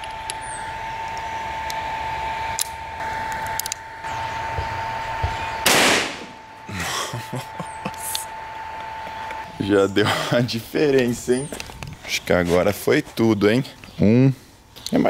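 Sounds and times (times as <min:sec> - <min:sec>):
revolver gunshot: 0:05.6 - 0:06.4.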